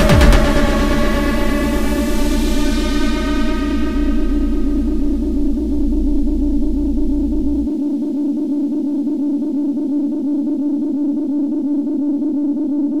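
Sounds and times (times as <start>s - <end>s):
deep bass: 0.0s - 8.2s
synthesizer tone with wobble: 0.0s - 13.0s.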